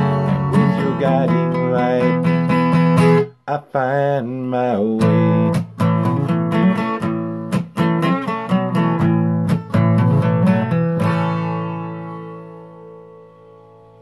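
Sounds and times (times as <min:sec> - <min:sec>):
acoustic guitar strumming: 0:00.0 - 0:14.0.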